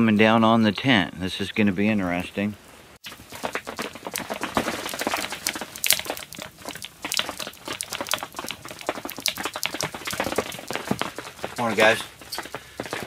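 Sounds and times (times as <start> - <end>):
wood fire crackling: 3.0 - 13.0.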